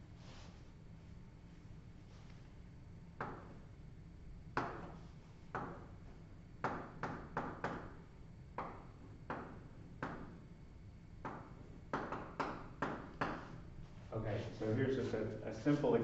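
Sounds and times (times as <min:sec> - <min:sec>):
chalk tapping on blackboard: 0:11.2 - 0:13.6.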